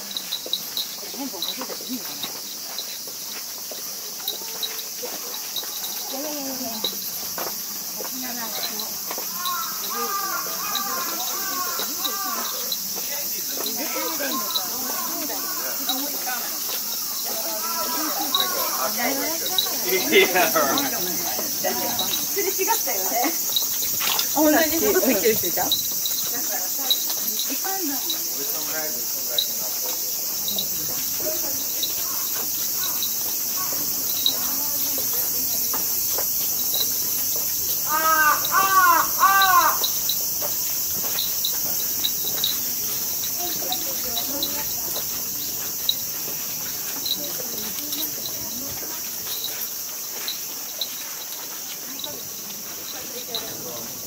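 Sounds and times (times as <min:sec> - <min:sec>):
cicada chorus drone: 0:00.0 - 0:54.0
bird calling: 0:09.3 - 0:12.9, 0:37.8 - 0:40.2.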